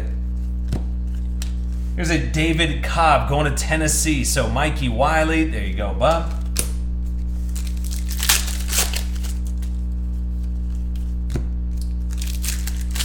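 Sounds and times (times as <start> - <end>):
low electrical hum: 0.0 - 13.0
foil wrappers and cards crinkling: 6.2 - 13.0.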